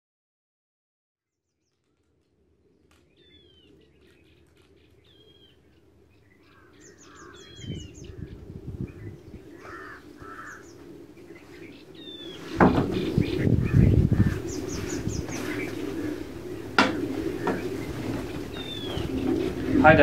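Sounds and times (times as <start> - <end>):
birds calling and trilling: 1.6 - 20.0
low thumps: 12.5 - 15.8.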